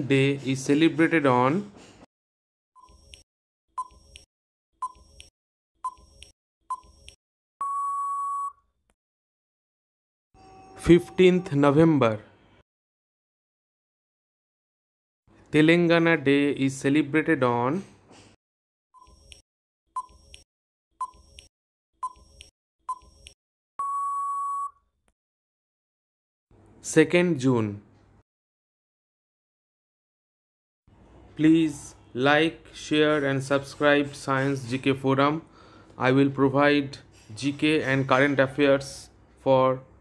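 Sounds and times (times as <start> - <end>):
short electronic beeps: 3.8 - 8.6, 22.0 - 24.8
long steady beep: 7.6 - 8.6, 23.8 - 24.8
short beeps: 7.6 - 8.6, 23.8 - 24.8.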